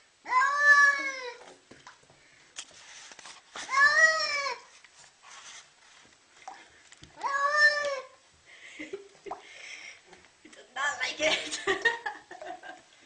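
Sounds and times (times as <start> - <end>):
cat meowing: 7.2 - 8.1.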